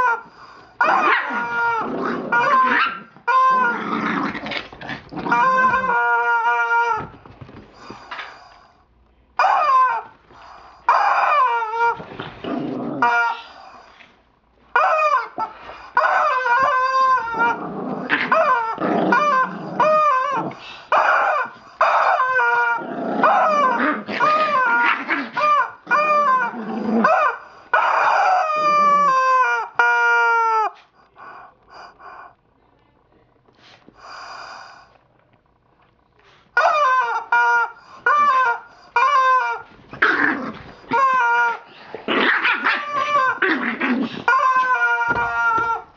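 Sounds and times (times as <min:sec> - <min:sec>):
rubber chicken toy squawking: 0:00.9 - 0:03.8, 0:05.3 - 0:07.1, 0:09.4 - 0:10.1, 0:14.7 - 0:17.6, 0:18.2 - 0:30.8, 0:36.6 - 0:40.2, 0:40.9 - 0:41.7, 0:42.4 - 0:43.5, 0:44.1 - 0:45.9.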